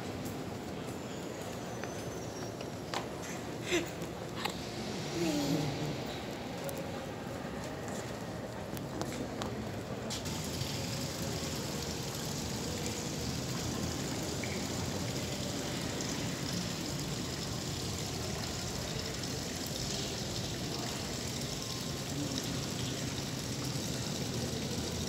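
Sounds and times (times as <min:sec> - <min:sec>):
small waterfall trickling: 0:08.3 - 0:25.0.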